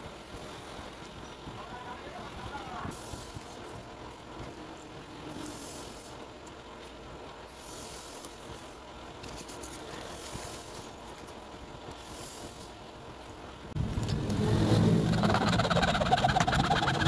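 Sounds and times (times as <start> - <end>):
low background rumble: 10.3 - 17.0.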